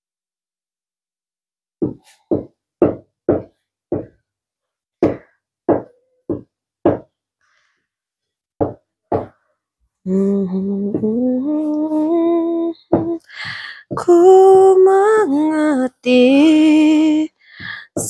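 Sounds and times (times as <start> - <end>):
cleaver chopping on wooden board: 5.0 - 7.1.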